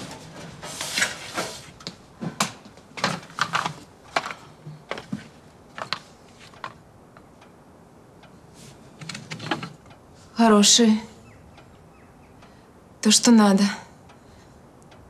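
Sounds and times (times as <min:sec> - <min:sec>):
footsteps on metal stepladder: 0:00.0 - 0:06.8.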